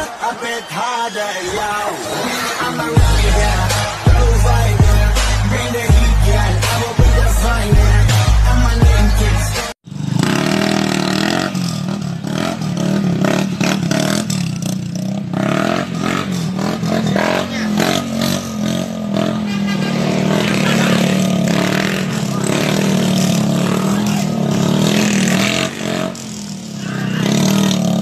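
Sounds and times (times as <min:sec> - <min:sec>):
small motorcycle engine revving: 0:09.8 - 0:28.0.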